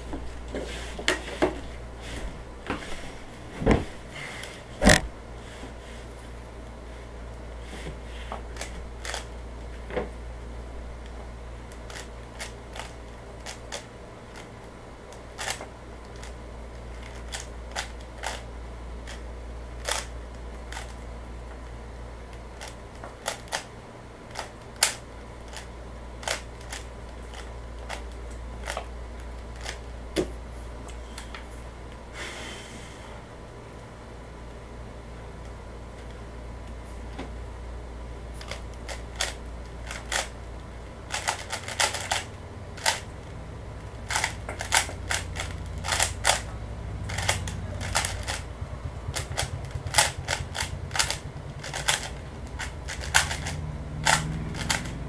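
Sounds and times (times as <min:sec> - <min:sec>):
low hum: 0:25.3 - 0:55.0
plastic puzzle cube clicking: 0:49.1 - 0:54.9.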